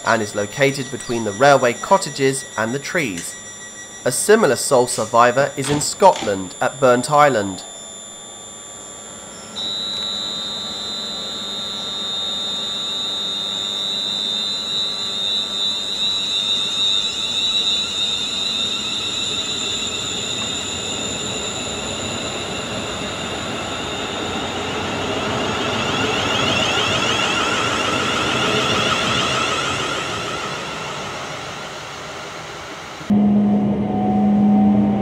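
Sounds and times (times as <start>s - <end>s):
electric train motor whine: 0.0s - 35.0s
rising tones: 0.0s - 35.0s.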